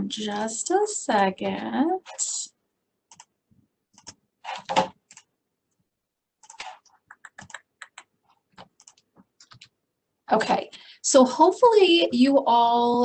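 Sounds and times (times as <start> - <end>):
keyboard typing: 3.1 - 5.3, 6.4 - 9.8.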